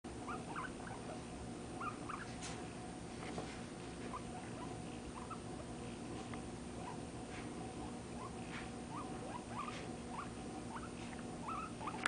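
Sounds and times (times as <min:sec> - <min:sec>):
guinea pig squeaking: 0:00.1 - 0:02.6, 0:04.0 - 0:05.7, 0:06.8 - 0:12.0.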